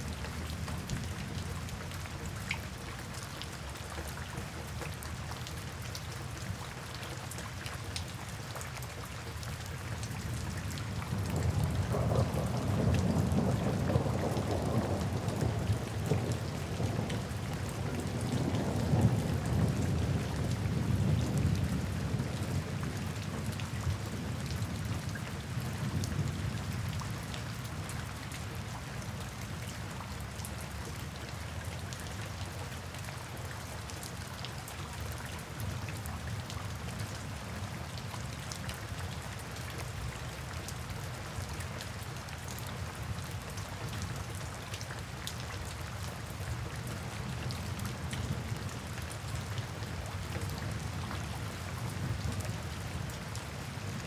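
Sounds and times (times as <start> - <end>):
steady rain falling: 0.0 - 54.0
thunder rumble: 11.3 - 16.8.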